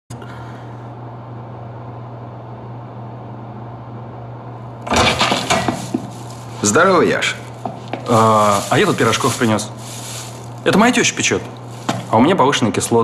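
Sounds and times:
low electrical hum: 0.1 - 13.0.

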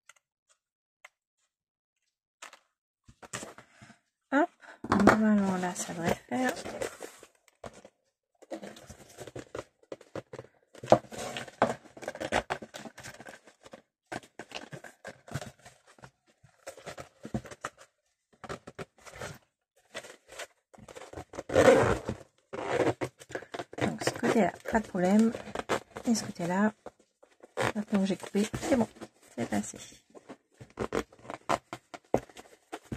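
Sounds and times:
zipper rasping: 21.4 - 26.7, 30.7 - 31.7.

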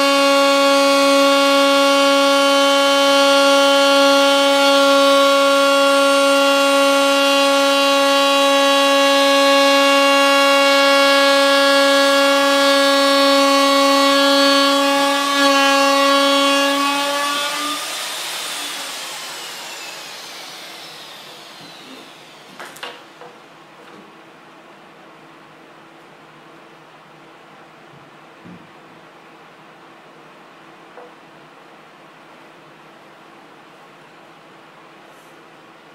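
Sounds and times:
wood router whining: 0.0 - 23.4.

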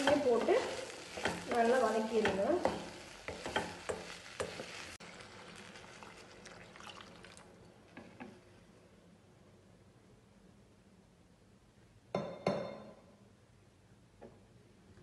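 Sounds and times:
spatula scraping a pan: 0.0 - 5.0
vegetables sizzling in butter: 0.0 - 8.3.

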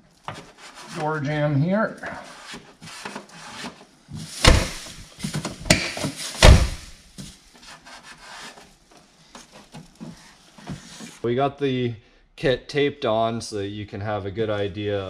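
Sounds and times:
hands rubbing masking tape: 2.0 - 8.9
loud knocks: 4.4 - 5.0, 5.7 - 6.9.

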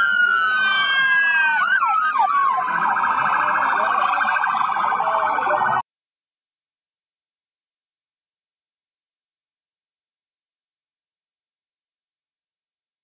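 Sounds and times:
emergency sirens wailing: 0.0 - 5.8
siren warbling yelp: 0.0 - 5.8.

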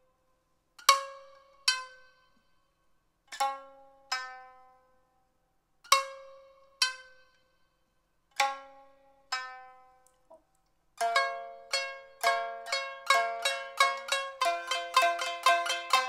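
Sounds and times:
shamisen plucked notes: 0.8 - 2.5, 3.3 - 5.0, 5.8 - 7.4, 8.3 - 10.4, 11.0 - 16.0.

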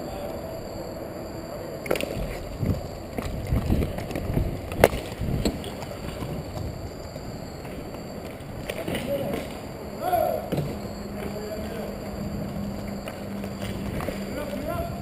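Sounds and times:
inline skates rolling: 0.0 - 15.0
wind buffeting microphone: 2.0 - 10.0.

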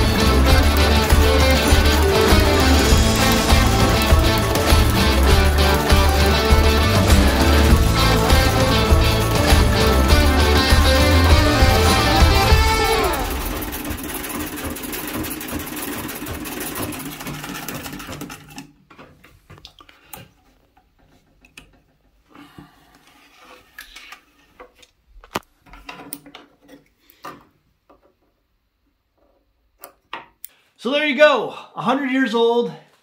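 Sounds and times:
treadle sewing machine stitching: 0.0 - 18.8.

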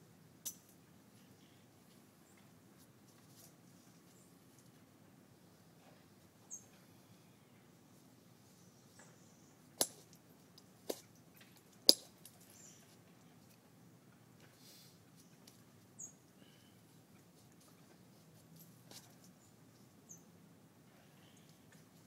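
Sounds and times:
sharp clicks of stone knapping: 9.8 - 10.2, 10.8 - 12.4.

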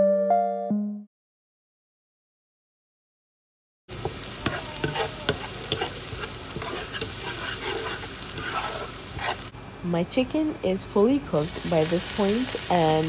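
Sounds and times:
spatula scraping pan: 3.9 - 9.5
onions sizzling in a pan: 3.9 - 9.6, 11.0 - 13.0.

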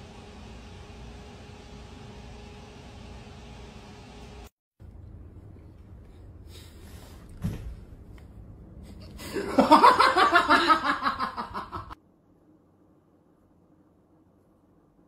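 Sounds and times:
person laughing loudly: 9.2 - 12.0.

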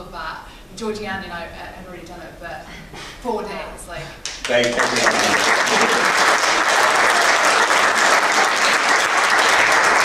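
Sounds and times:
audience applause: 4.4 - 10.0.

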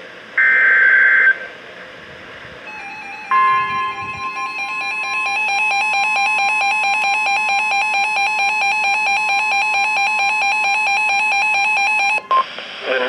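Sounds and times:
weather radio warning tone: 2.7 - 10.0
rapid pulsing electronic beep: 2.7 - 12.5.

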